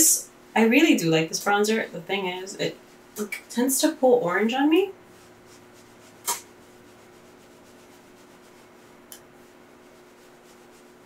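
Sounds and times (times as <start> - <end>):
low steady hum: 0.0 - 11.0
brush swishing on skin: 2.7 - 3.4, 5.0 - 11.0.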